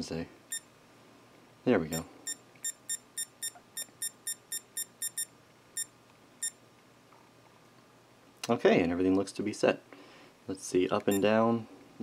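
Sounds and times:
short high electronic beeps: 0:01.9 - 0:06.6.

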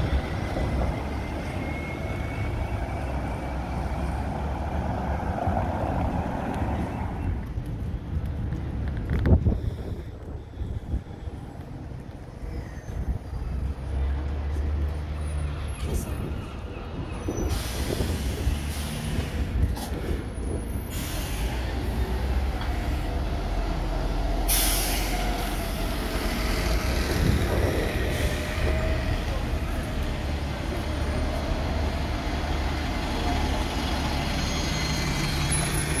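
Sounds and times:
diesel bus engines running: 0:00.0 - 0:36.0
air brake hiss: 0:17.4 - 0:19.9, 0:20.9 - 0:21.7, 0:24.4 - 0:25.6.

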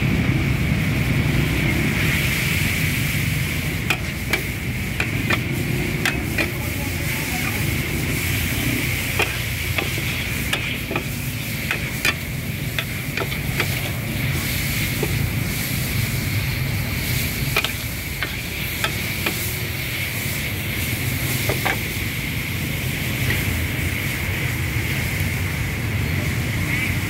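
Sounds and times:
frying sizzle: 0:00.0 - 0:27.0
metal ladle scraping a wok: 0:03.6 - 0:16.0, 0:16.9 - 0:20.4.

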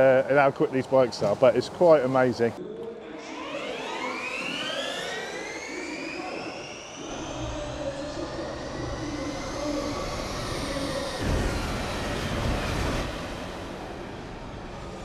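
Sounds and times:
electric motorcycles whining: 0:02.9 - 0:15.0
low rumble: 0:07.1 - 0:15.0.

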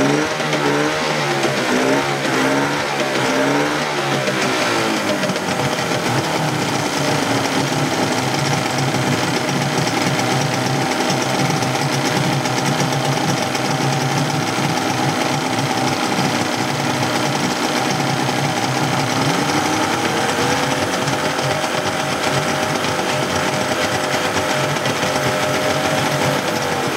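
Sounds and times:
outboard motor running: 0:00.0 - 0:26.9.

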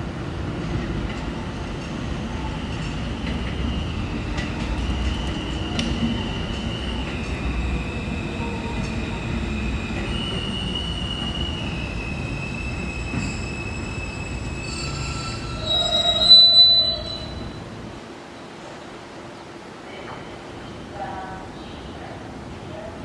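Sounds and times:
train cars rumbling: 0:00.0 - 0:18.1
train wheels squealing on rails: 0:02.4 - 0:17.8.

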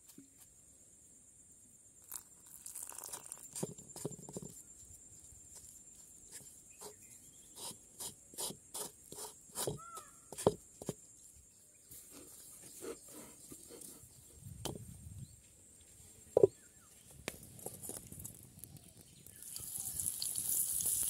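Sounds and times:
wooden spoon knocking clay bowl: 0:09.6 - 0:11.0.

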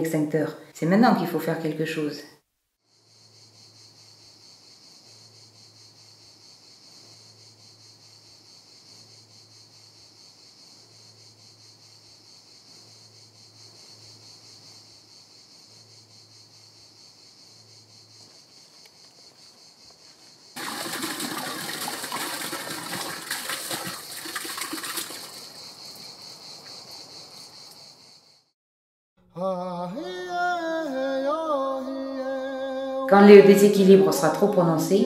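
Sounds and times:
insects chirring: 0:02.8 - 0:28.5, 0:29.8 - 0:35.0
water gushing into basin: 0:20.6 - 0:25.6.

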